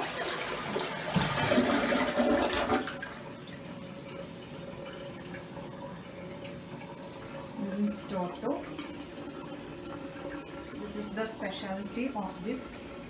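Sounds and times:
toilet flushing: 0.0s - 13.0s
water running from spout: 0.0s - 13.0s.

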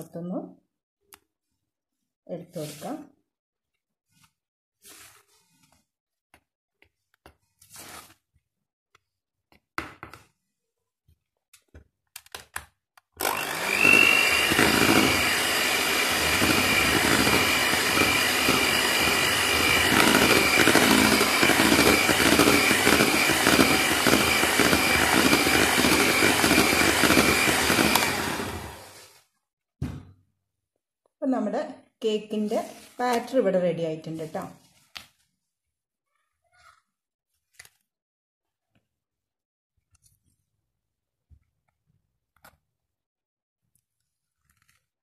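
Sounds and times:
electric hand mixer whining: 13.2s - 29.2s.

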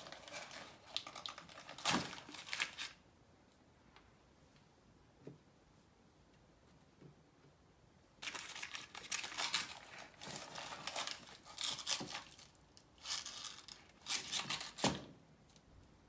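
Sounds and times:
baking paper crinkling and rustling: 0.0s - 3.0s, 8.2s - 15.7s.

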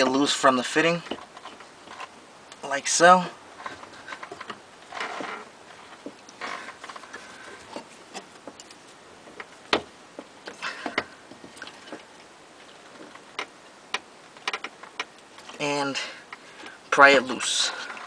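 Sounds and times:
rubber hose scraping: 0.0s - 9.6s.

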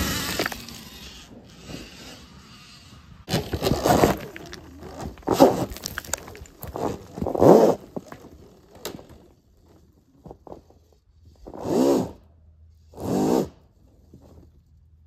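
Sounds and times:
stones clattering: 0.0s - 0.8s, 3.3s - 8.5s
electric dirt bike passing: 0.0s - 5.7s, 6.7s - 10.0s
tyre spraying dirt and gravel: 3.3s - 8.1s.

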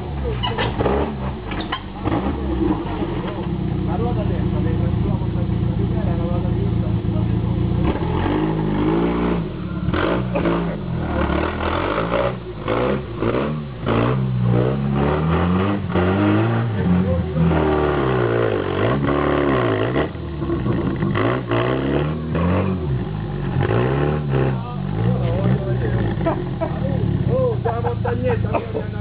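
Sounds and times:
off-road vehicle engine revving: 0.0s - 29.0s.

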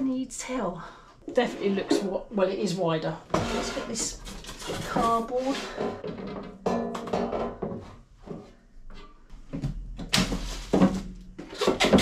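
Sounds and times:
cardboard scraping: 3.3s - 6.0s, 10.2s - 12.0s
basket drawer sliding and knocking: 3.3s - 6.4s.

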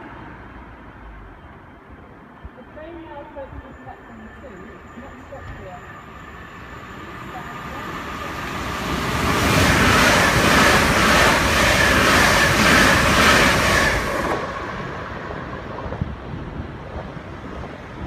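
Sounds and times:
train wheels rushing on rails: 3.7s - 18.0s.

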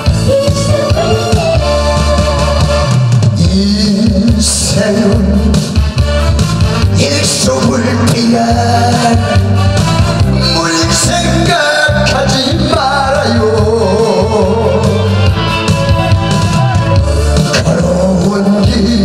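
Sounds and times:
man singing into microphone: 0.0s - 2.6s, 3.3s - 6.0s, 6.8s - 15.4s, 17.4s - 19.0s
backing track with bass beat: 0.0s - 19.0s.

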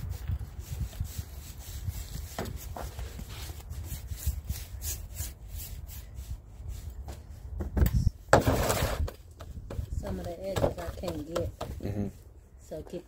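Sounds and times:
applicator scrubbing wooden decking: 0.0s - 7.2s.

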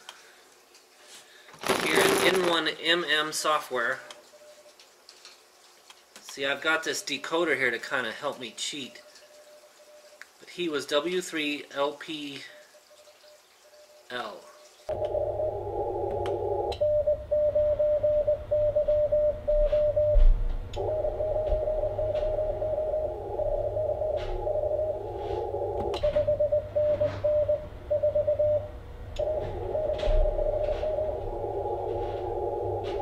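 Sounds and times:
receiver hiss: 1.3s - 4.6s, 14.9s - 20.2s, 20.8s - 33.0s
morse code tone: 15.0s - 33.0s.

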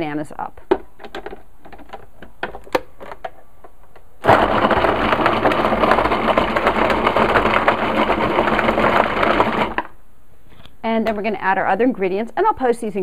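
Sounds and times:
food processor motor: 4.2s - 9.9s.

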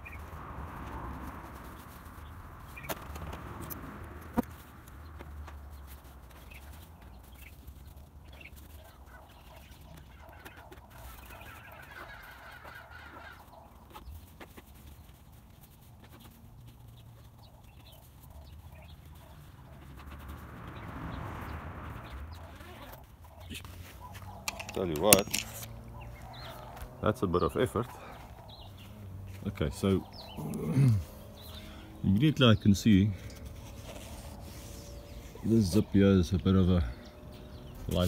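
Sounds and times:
hens clucking: 6.2s - 38.0s
hen pulsing call: 9.9s - 13.6s.

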